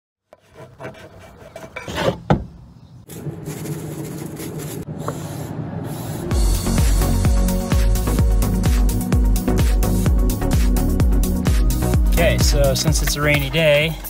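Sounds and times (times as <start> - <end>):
tools scraping on wood: 0.3 - 2.4.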